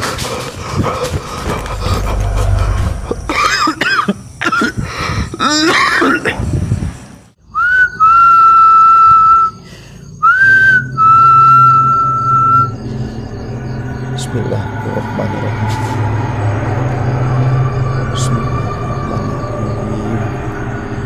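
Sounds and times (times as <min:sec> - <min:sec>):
high whistle-like tone: 0:07.4 - 0:09.6, 0:10.2 - 0:13.0.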